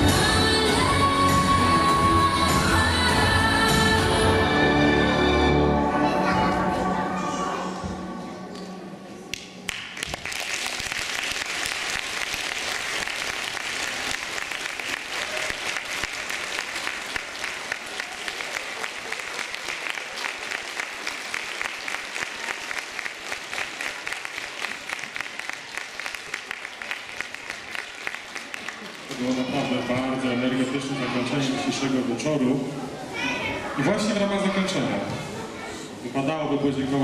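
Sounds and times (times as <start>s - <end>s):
music: 0.0s - 9.3s
audience applauding: 9.3s - 29.9s.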